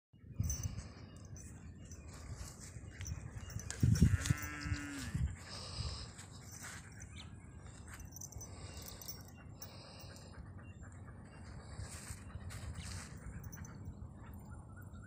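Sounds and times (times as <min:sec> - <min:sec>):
faint outdoor background: 0:00.1 - 0:15.0.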